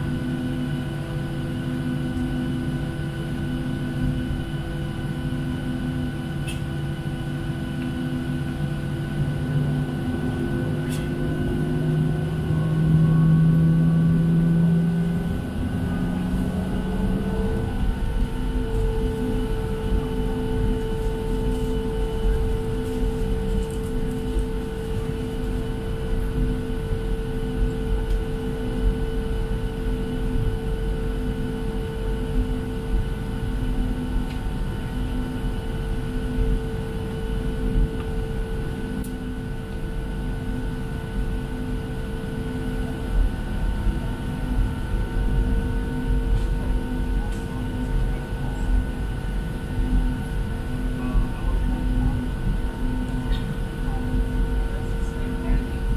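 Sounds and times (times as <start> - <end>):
aircraft cabin low rumble: 0.0 - 55.9
steady whining tones: 6.9 - 34.7
low pulsing tone: 9.1 - 25.1.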